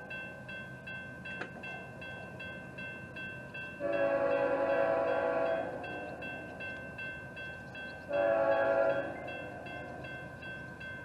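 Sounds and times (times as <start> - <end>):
locomotive air horn blasts: 3.8 - 5.8, 8.1 - 9.2.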